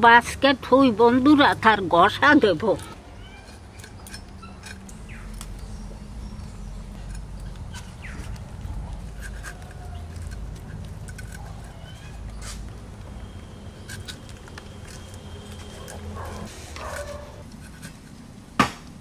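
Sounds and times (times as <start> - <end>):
low steady rumble: 0.0 - 18.6
bird chirps: 3.1 - 8.4
fish being gutted by hand: 7.1 - 18.1.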